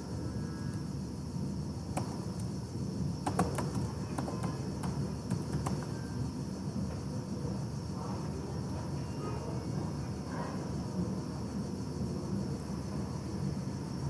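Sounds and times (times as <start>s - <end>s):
low hum and hiss: 0.0s - 14.0s
computer keyboard keystrokes: 3.2s - 5.9s.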